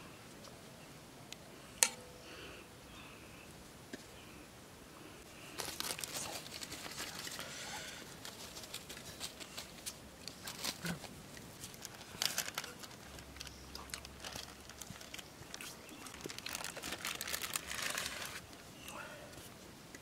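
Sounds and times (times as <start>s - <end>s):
rustling and crinkling: 5.3s - 19.7s.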